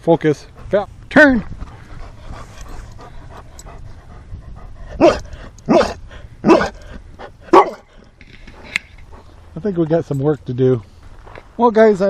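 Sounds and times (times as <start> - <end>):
dog barking: 5.0 - 6.8, 7.5 - 7.9.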